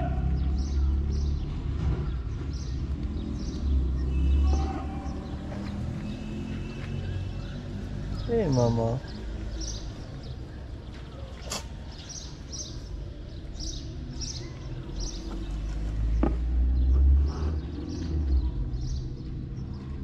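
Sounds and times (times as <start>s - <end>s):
small birds chirping: 0.1s - 20.0s.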